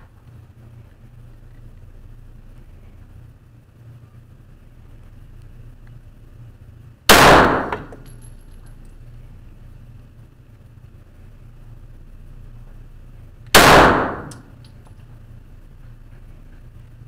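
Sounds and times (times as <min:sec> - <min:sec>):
pistol shot: 0:07.1 - 0:08.0, 0:13.6 - 0:14.5.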